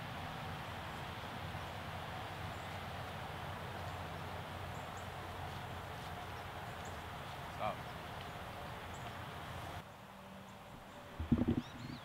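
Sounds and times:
steady background hiss: 0.0s - 12.0s
low hum: 11.0s - 12.0s.

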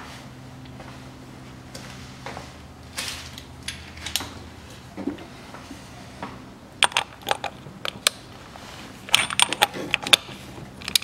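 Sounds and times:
ratchet and socket clinking: 9.1s - 11.0s.

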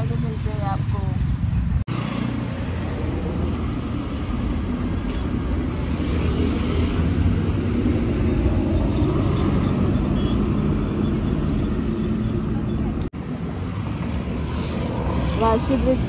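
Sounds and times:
motorcycle engine and road rumble: 0.0s - 16.0s
traffic noise: 0.0s - 16.0s.

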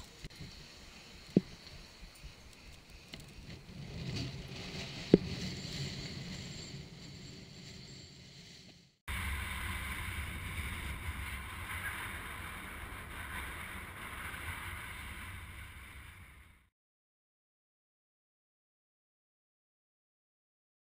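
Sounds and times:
faint steady whine: 0.0s - 16.7s
wind buffeting microphone: 9.1s - 16.4s.

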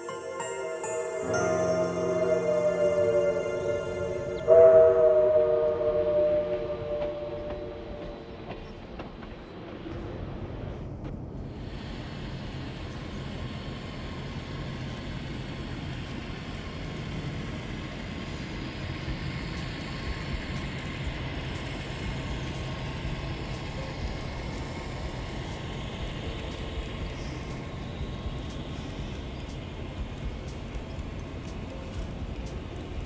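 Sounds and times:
train rumbling by: 0.0s - 33.0s
wheels clicking on rail joints: 12.8s - 33.0s.

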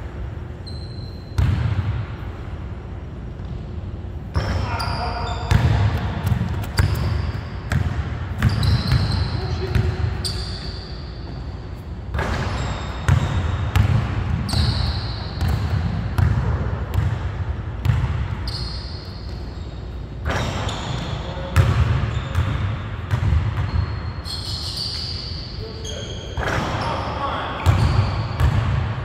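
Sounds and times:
sneakers squeaking on floor: 0.5s - 1.7s, 4.3s - 16.4s, 17.8s - 29.0s
basketball bouncing on hardwood floor: 13.1s - 14.7s, 15.4s - 18.3s, 27.6s - 28.9s.

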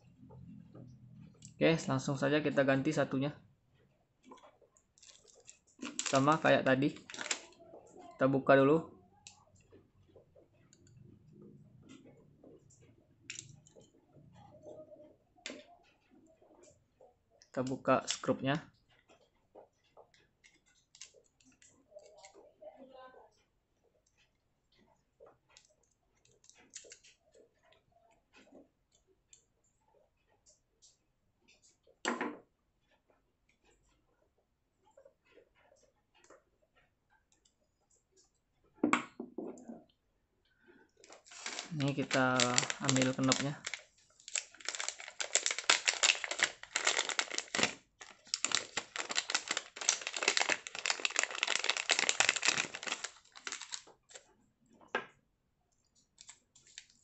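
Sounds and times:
plastic bag crinkling in hands: 5.0s - 7.6s, 41.0s - 54.2s, 56.2s - 57.0s.

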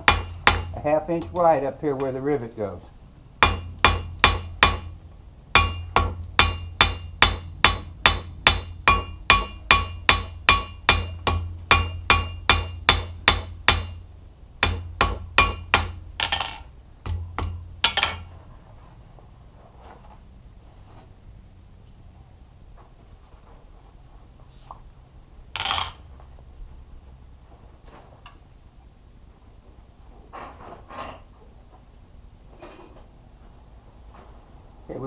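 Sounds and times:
hammer ringing on anvil: 0.0s - 1.4s, 3.4s - 5.0s, 5.6s - 18.3s.

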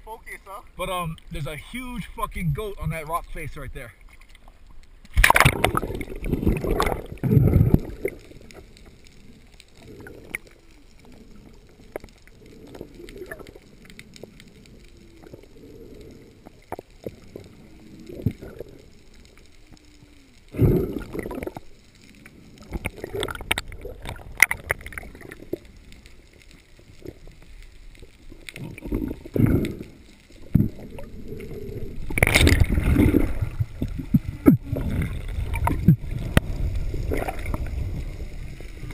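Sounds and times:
muffled underwater rushing: 0.0s - 38.9s
faint clicks: 1.0s - 38.9s.

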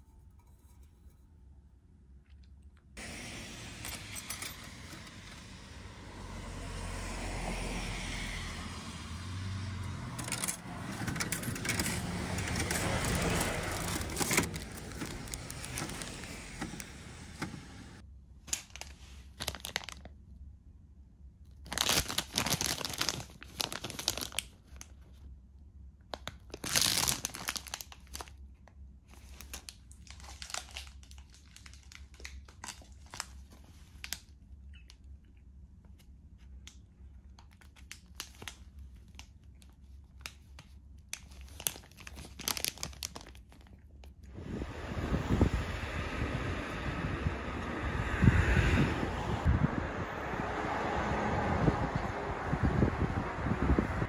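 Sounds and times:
plastic wrapper crinkling: 12.5s - 16.5s, 18.5s - 20.1s, 21.6s - 25.0s, 26.1s - 28.4s, 29.1s - 34.4s, 37.3s - 44.2s.

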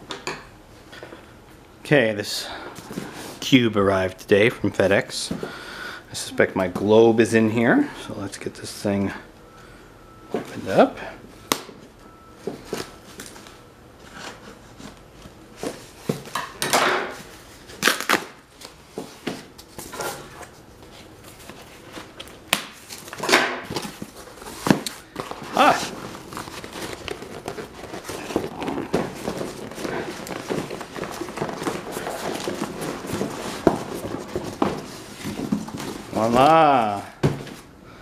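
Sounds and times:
tape ripping: 17.8s - 18.4s
cardboard flaps scraping: 18.9s - 36.6s.

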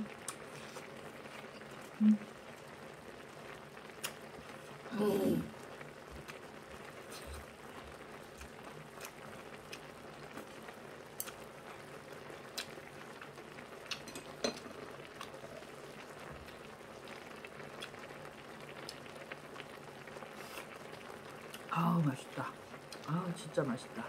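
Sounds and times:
faint steady hiss: 0.0s - 24.0s
chewing: 8.3s - 10.5s, 11.2s - 11.4s, 12.5s - 12.8s, 13.8s - 15.6s, 17.7s - 18.1s.

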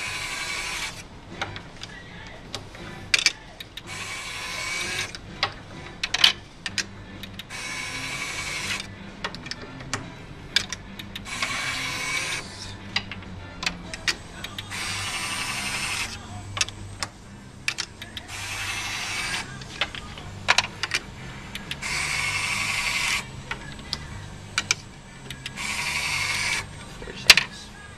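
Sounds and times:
small electric motor running: 0.0s - 1.0s, 3.8s - 5.2s, 7.5s - 8.9s, 11.2s - 12.8s, 14.0s - 16.3s, 18.1s - 20.2s, 21.6s - 26.8s.

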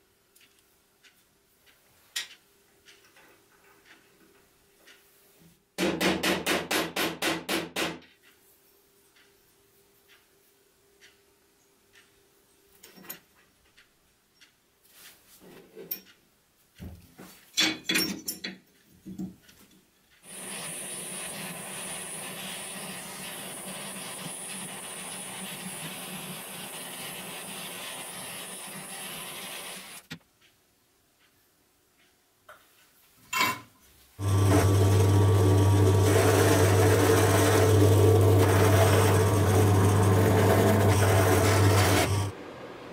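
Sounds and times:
gas torch flame hissing: 20.2s - 30.1s
drill press motor humming: 20.3s - 30.1s, 34.2s - 42.3s.

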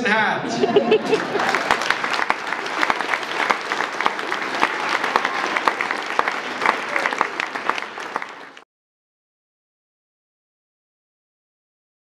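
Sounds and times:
audience applause: 0.8s - 8.6s.

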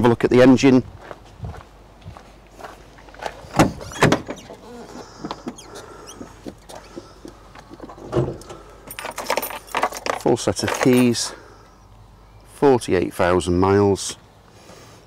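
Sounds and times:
van door latch clacks: 3.5s - 4.6s
clicks and rattles: 6.5s - 11.2s.

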